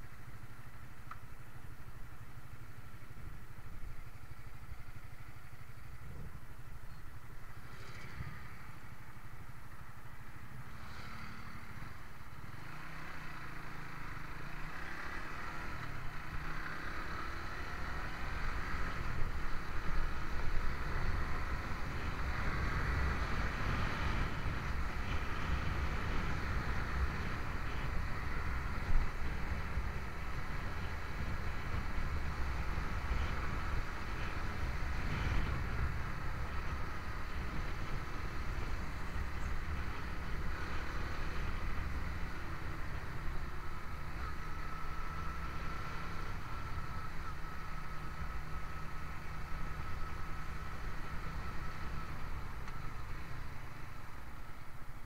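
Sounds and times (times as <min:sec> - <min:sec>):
motorcycle engine running: 0:00.0 - 0:55.0
wind rumble on microphone: 0:17.3 - 0:55.0.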